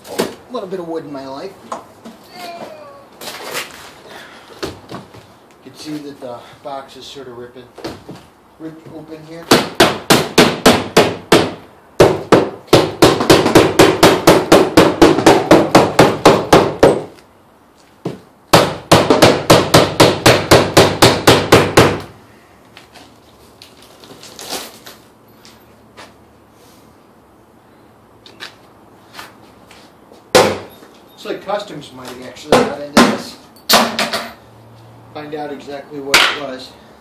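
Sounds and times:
hammer striking wooden crate: 9.5 - 17.2, 18.1 - 22.1, 30.3 - 30.7, 32.5 - 34.3.

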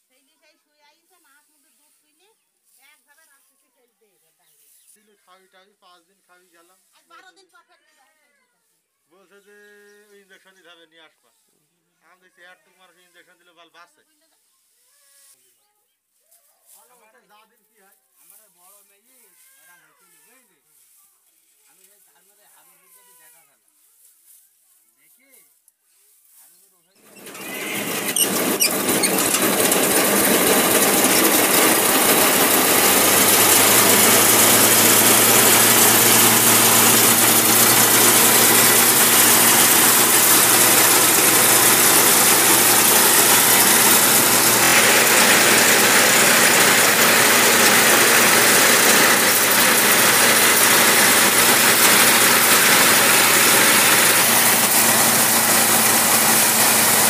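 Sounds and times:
thresher engine running: 27.0 - 57.0.

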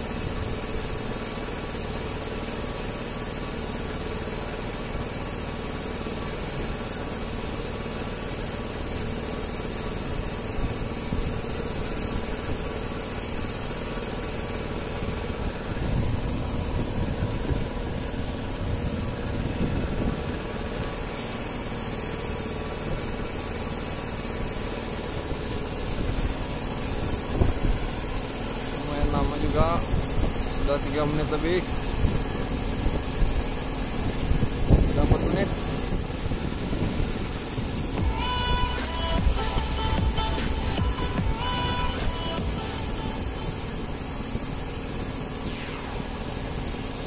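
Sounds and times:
boat engine idling: 0.0 - 47.0
water rumble: 0.0 - 47.0
wind: 0.0 - 47.0.

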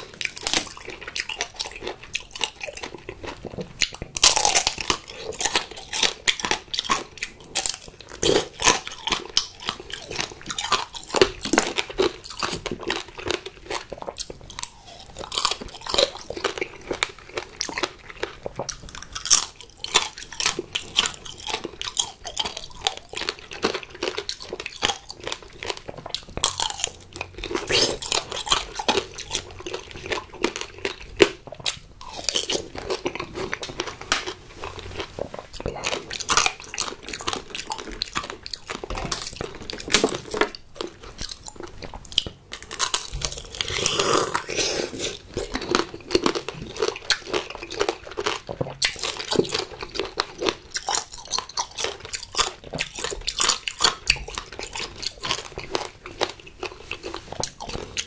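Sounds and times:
hard candy shell crunching: 0.0 - 57.9
chewing fruit: 0.0 - 58.0.

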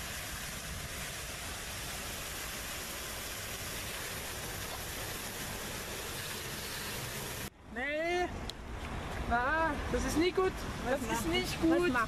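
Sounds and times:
fountain water spraying and splashing: 0.0 - 7.5.

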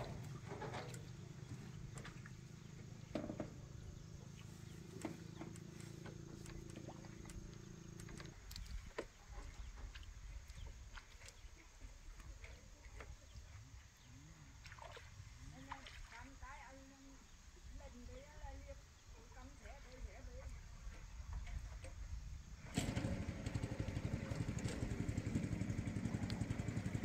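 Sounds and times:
bamboo poles knocking and creaking: 3.1 - 3.6.

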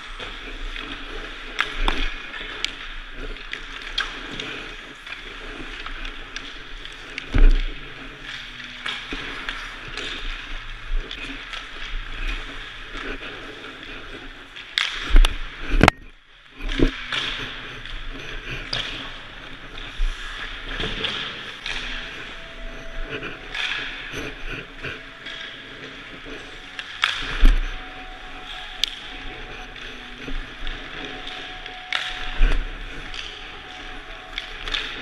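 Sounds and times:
skate blades scraping ice: 0.0 - 15.9, 16.6 - 35.0
sticks and pucks knocking: 16.6 - 35.0.

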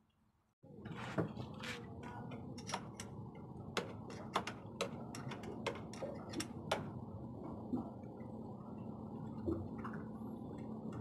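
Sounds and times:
sharp metallic clicks and taps: 3.8 - 6.9.

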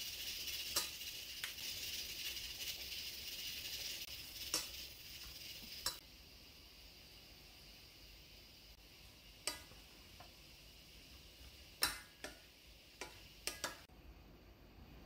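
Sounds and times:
spoon stirring onions in pot: 0.0 - 6.0, 9.4 - 10.4, 11.1 - 13.9
faint steady hiss: 0.0 - 15.0.

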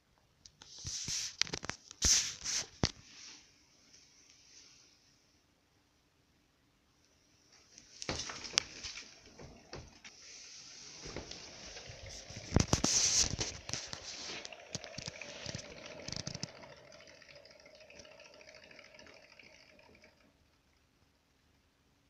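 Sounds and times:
hamster paws pattering on wheel: 7.8 - 20.2.

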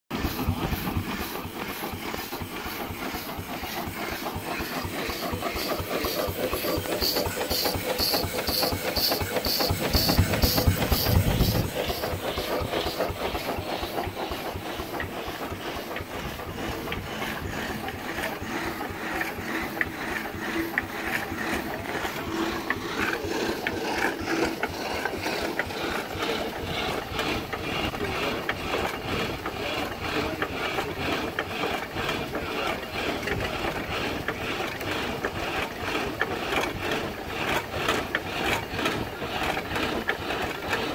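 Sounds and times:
drag saw gears clattering: 0.1 - 32.3.

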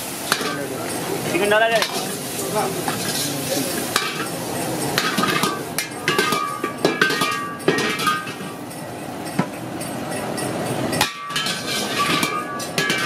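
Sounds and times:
frying hiss: 0.0 - 13.0
metal ladle scraping a wok: 1.8 - 8.7, 10.9 - 13.0.

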